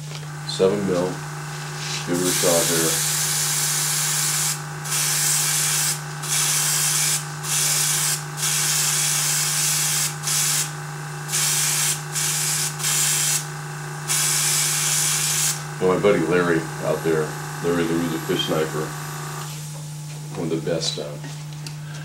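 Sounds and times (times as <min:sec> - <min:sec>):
airbrush spraying: 0:00.9 - 0:10.7, 0:11.3 - 0:13.5, 0:14.1 - 0:15.7.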